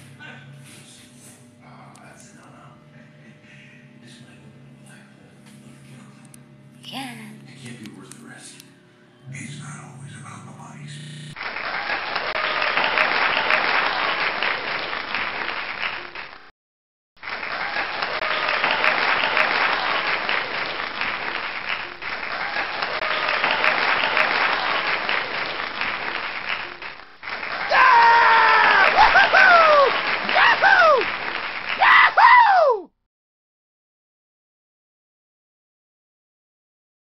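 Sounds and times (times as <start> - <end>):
crowd applause: 11.3 - 16.5, 17.2 - 32.8.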